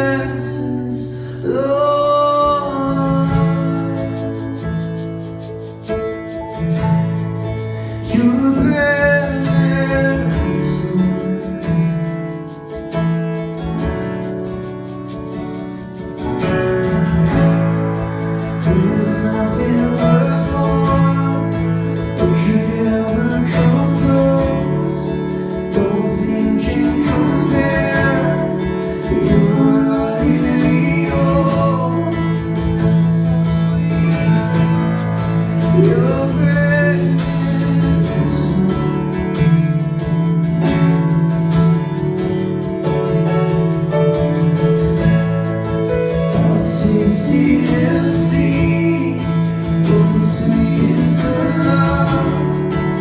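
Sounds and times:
man singing: 0.0s - 5.4s, 7.8s - 12.4s, 18.3s - 41.1s, 46.2s - 53.0s
acoustic guitar strumming: 0.0s - 53.0s.

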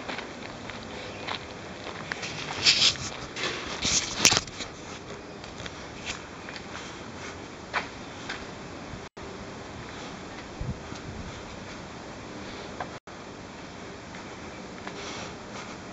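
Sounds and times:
footsteps: 0.0s - 8.6s
background hiss: 0.0s - 15.9s.

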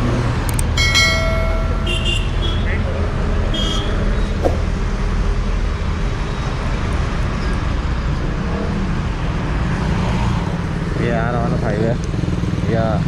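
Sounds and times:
passing road traffic: 0.0s - 13.0s
motorcycle engines idling: 0.6s - 2.4s.

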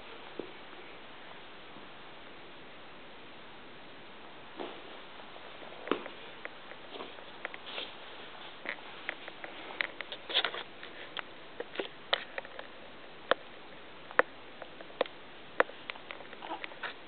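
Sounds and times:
soft rustles: 4.5s - 13.0s.

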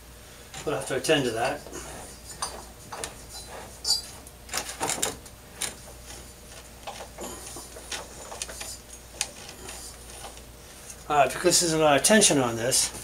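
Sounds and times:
sanding belt rustling and scraping: 1.1s - 4.2s.

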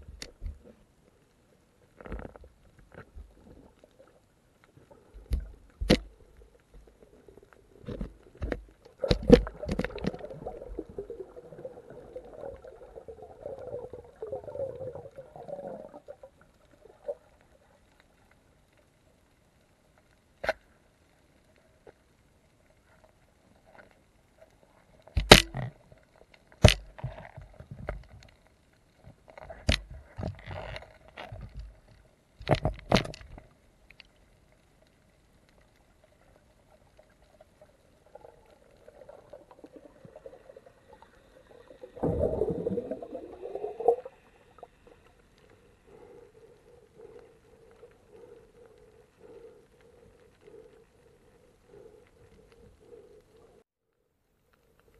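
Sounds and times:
underwater knocks and clicks: 5.2s - 7.0s, 7.8s - 11.1s, 25.1s - 25.9s, 26.5s - 28.4s, 29.0s - 34.1s.

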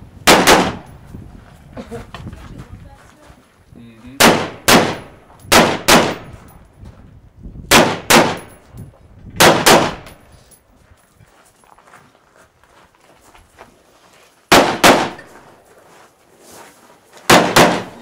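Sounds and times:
rifle shots: 0.2s - 0.9s, 4.2s - 6.5s, 7.7s - 8.6s, 9.4s - 10.2s, 14.5s - 15.4s, 17.3s - 18.0s.

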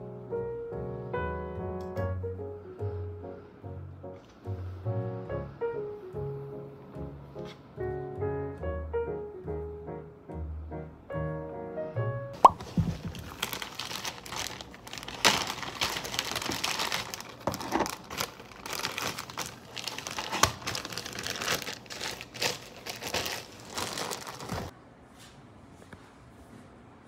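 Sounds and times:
plastic bag crinkling: 12.4s - 24.7s.

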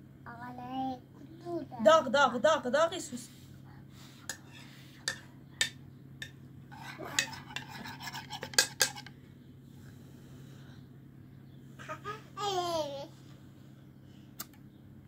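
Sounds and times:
spoons clinking on ceramic plates: 4.3s - 9.1s.

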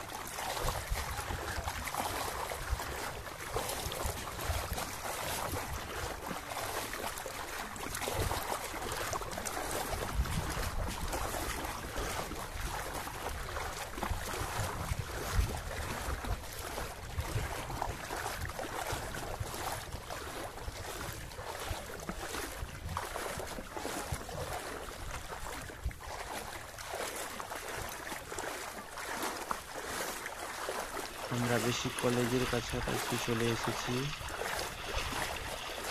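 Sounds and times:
water sloshing and splashing: 0.0s - 35.9s
wind buffeting microphone: 0.5s - 6.4s, 9.8s - 26.1s, 31.1s - 35.9s.

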